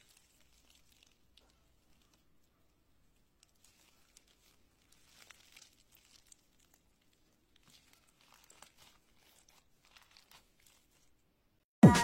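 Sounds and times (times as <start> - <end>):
slime crackling when squeezed: 0.0 - 11.1.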